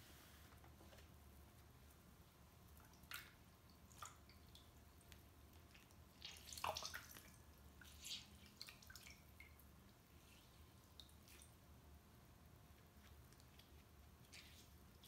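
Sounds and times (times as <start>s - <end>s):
water dripping into a bowl: 2.6s - 10.0s
wet cloth being wrung out: 5.7s - 9.3s.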